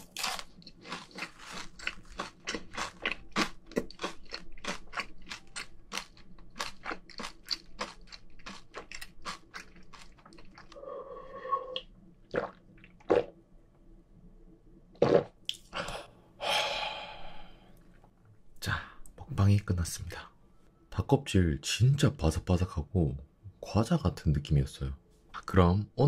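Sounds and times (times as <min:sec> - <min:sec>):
chewing crunchy food: 0:00.0 - 0:10.8.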